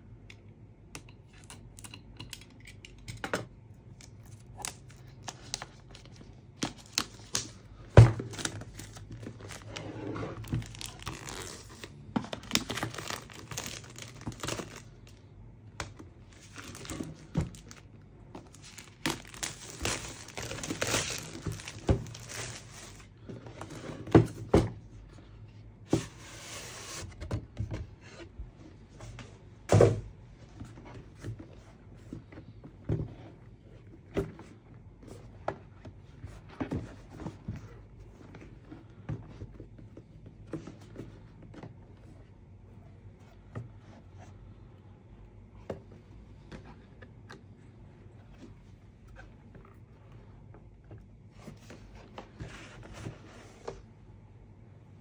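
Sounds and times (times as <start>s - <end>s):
packaging crinkling and rustling: 4.0s - 15.2s, 16.2s - 23.2s.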